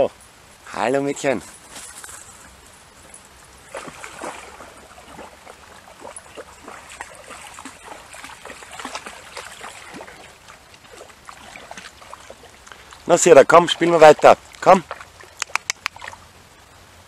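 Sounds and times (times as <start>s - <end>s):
water splashing and trickling: 1.2s - 17.0s.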